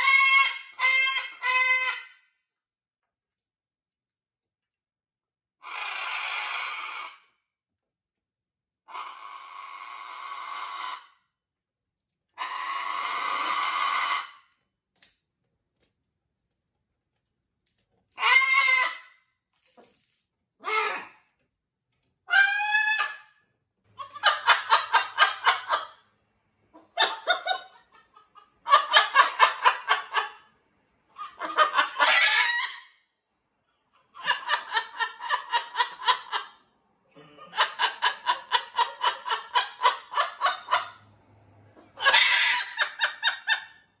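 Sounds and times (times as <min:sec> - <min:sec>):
macaw chuckling calls: 0:26.8 - 0:30.4.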